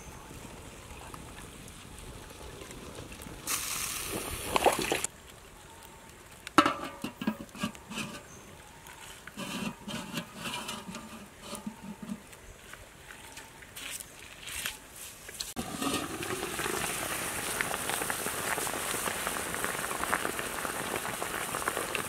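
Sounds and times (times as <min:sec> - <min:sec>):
metal lid clanking on wok: 0:06.6 - 0:08.3, 0:09.4 - 0:12.2
metal lid rattling: 0:06.6 - 0:08.3, 0:09.4 - 0:12.2, 0:15.6 - 0:16.4.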